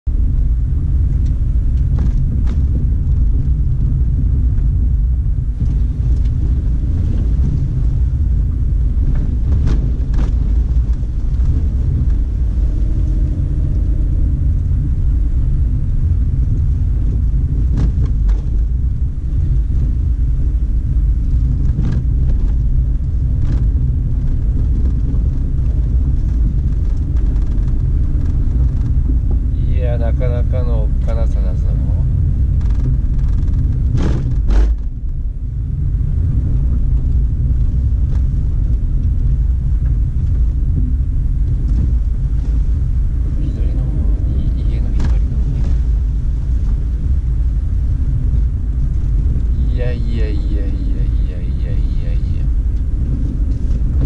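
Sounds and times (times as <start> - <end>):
car engine and tyres rumbling: 0.0 - 54.0.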